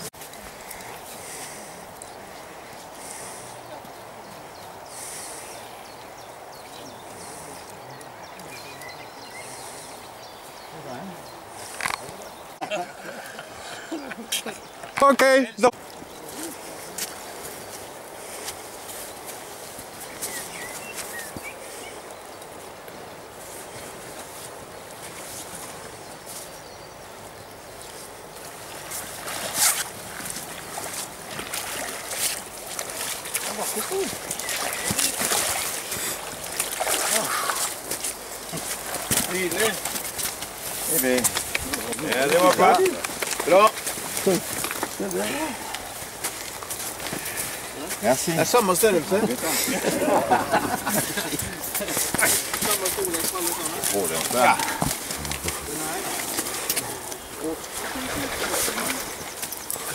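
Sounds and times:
river water rushing: 28.0 - 59.9
fish splashing: 28.7 - 40.6, 52.0 - 59.9.

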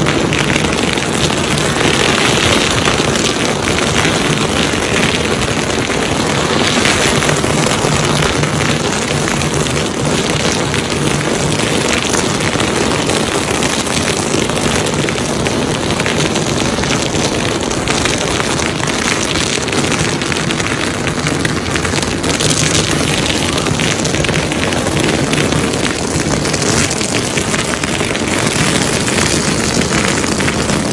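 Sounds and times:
firecrackers popping: 0.0 - 30.9.

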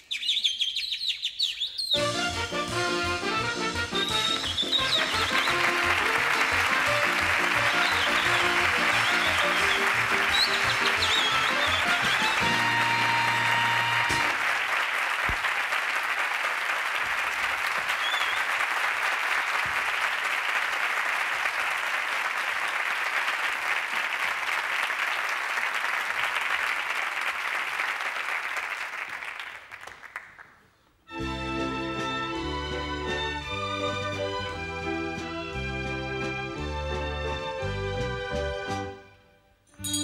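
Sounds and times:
music: 2.0 - 14.4, 31.1 - 40.0
audience applauding: 2.9 - 30.6.

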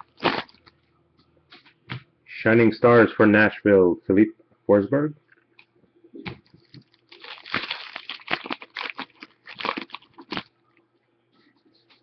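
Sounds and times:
foil wrapper crinkling: 0.0 - 0.7, 6.4 - 10.5.

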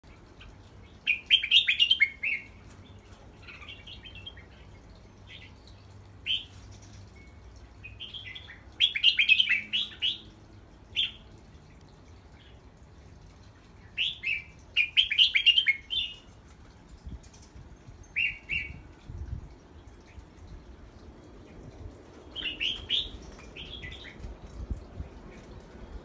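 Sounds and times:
bird chirping: 0.4 - 10.3, 22.2 - 26.0.

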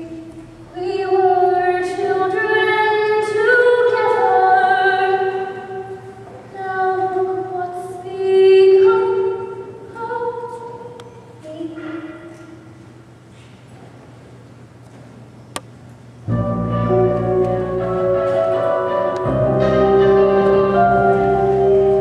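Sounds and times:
girl singing unaccompanied: 0.0 - 12.6.

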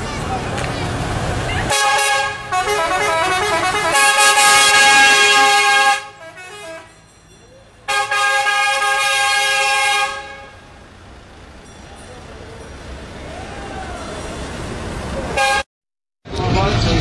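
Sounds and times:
street and engine noise: 0.0 - 17.0
train horn chord blasts: 1.7 - 6.9.

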